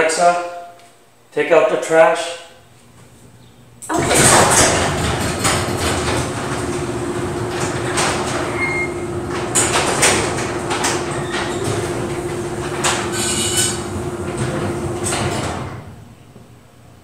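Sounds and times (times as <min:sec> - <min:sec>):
garage door opener humming: 0:03.8 - 0:16.8
clanks and knocks: 0:03.9 - 0:15.9
garage door rattling on tracks: 0:03.9 - 0:16.1.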